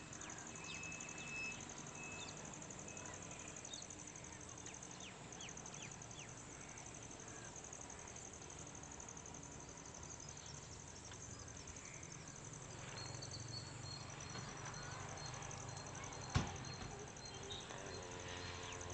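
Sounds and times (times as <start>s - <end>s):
insects trilling: 0.0s - 18.9s
faint high bird-like notes: 0.2s - 3.8s, 12.8s - 18.9s.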